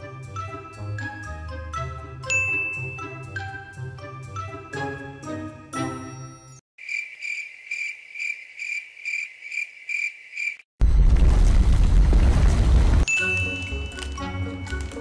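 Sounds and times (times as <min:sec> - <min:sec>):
light mallet percussion music: 0:00.3 - 0:06.6, 0:13.1 - 0:15.0
cricket chirping: 0:06.8 - 0:10.6.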